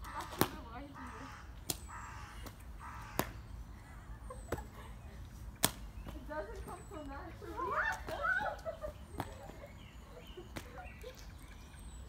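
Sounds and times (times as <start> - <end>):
crow cawing: 0.0 - 3.4.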